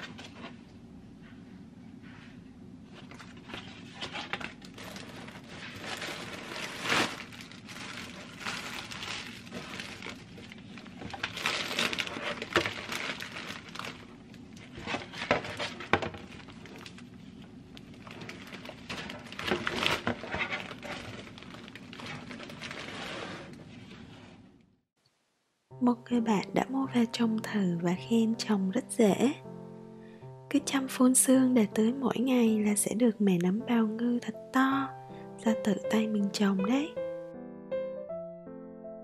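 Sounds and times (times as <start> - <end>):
cardboard box rustling: 3.0 - 14.0, 14.7 - 16.9, 18.0 - 23.5
plastic bag crinkling: 3.0 - 23.6.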